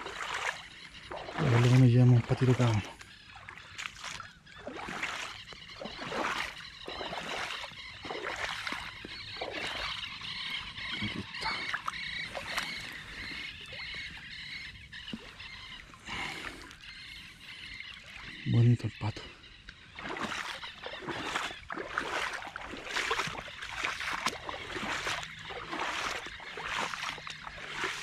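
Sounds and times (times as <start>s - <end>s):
water dripping: 0.0s - 2.8s, 3.4s - 10.0s, 20.0s - 28.0s
boots splashing through water: 0.0s - 18.4s, 19.7s - 28.0s.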